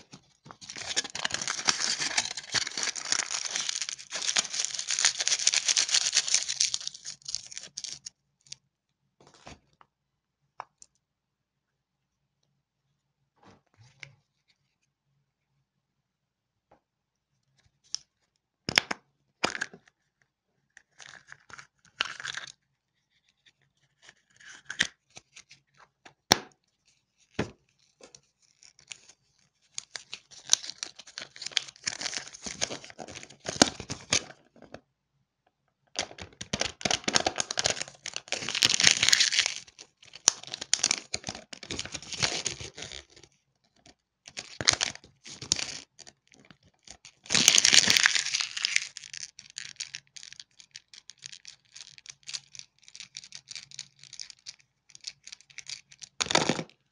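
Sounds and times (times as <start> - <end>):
paper and foil crinkling: 0.4 - 8.1, 37.3 - 43.0, 47.1 - 56.3.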